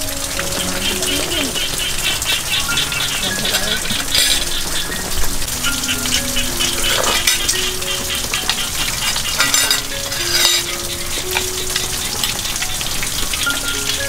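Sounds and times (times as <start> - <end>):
crackling hiss: 0.0 - 14.0
slow melody of held notes: 0.0 - 14.0.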